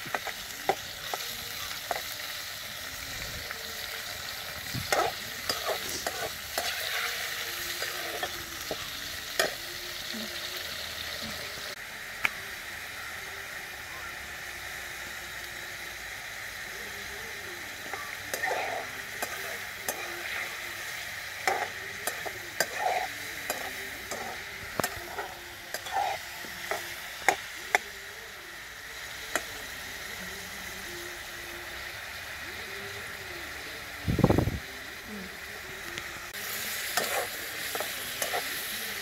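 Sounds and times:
prawns sizzling in pan: 0:00.0 - 0:39.0
metal spatula scraping pan: 0:21.4 - 0:26.8.

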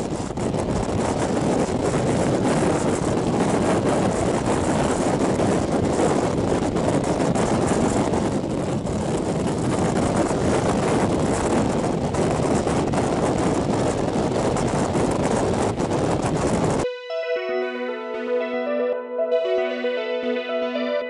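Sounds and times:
train wheels rumbling on rail: 0:00.0 - 0:16.8
wind buffeting microphone: 0:00.0 - 0:16.9.

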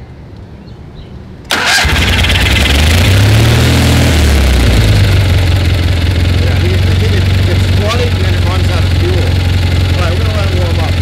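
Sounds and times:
starter motor cranking: 0:01.5 - 0:03.3
engine idling: 0:01.5 - 0:11.0.

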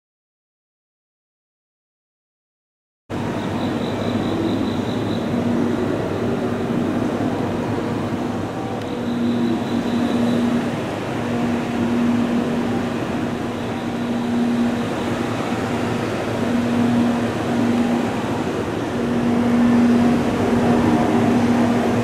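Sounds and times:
mechanical hum and rush: 0:03.1 - 0:22.0
low pulsing hum: 0:03.2 - 0:22.0.

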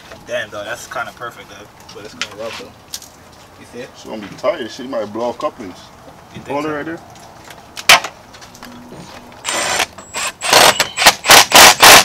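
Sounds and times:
power tool short bursts: 0:09.4 - 0:12.0.

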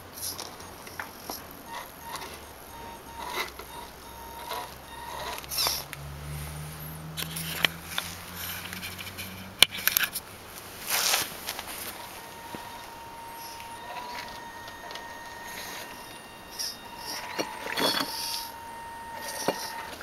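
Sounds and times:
low motor hum: 0:00.0 - 0:20.0.

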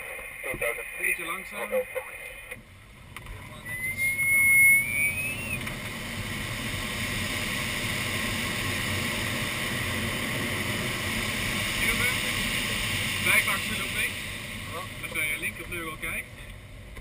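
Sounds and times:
rising whistle: 0:03.6 - 0:05.6
airflow rushing past glider canopy: 0:04.8 - 0:15.6.

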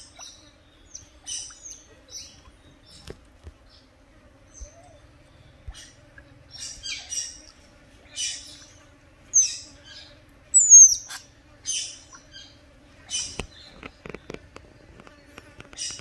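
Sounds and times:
otters chirping and squeaking: 0:09.4 - 0:12.3, 0:13.1 - 0:14.5, 0:15.2 - 0:16.0
otter shrill whistles: 0:10.6 - 0:11.0.

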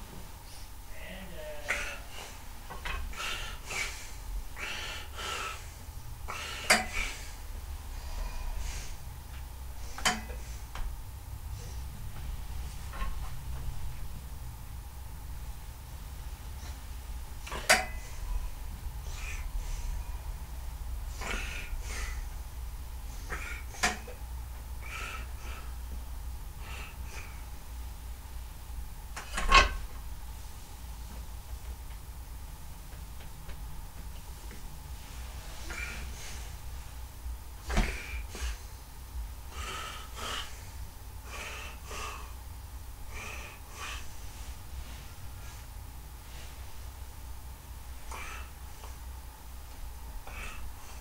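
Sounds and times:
person breathing: 0:01.4 - 0:14.0, 0:16.5 - 0:24.2, 0:24.8 - 0:27.6, 0:34.9 - 0:37.0, 0:37.6 - 0:42.4, 0:43.0 - 0:47.0, 0:48.0 - 0:49.1, 0:50.2 - 0:51.0.

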